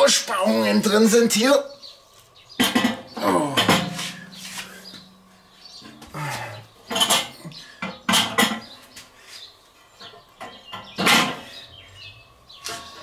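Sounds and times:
metal griddle scraping and clunking: 2.6s - 4.7s.

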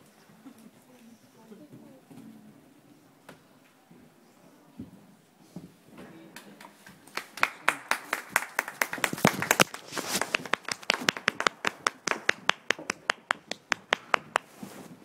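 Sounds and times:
hands clapping: 6.4s - 14.6s.

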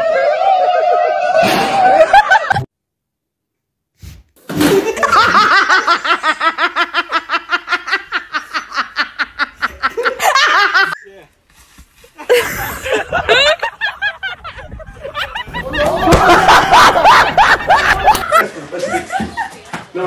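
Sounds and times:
person laughing hard: 12.2s - 18.4s.

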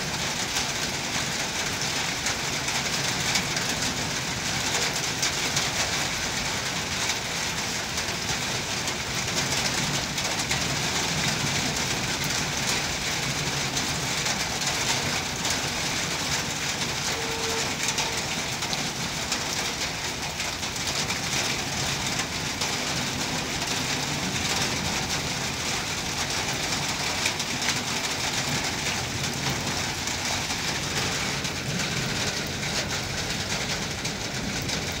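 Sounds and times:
steady rain falling: 0.0s - 35.0s
train coaches rolling on tracks: 16.4s - 20.4s.

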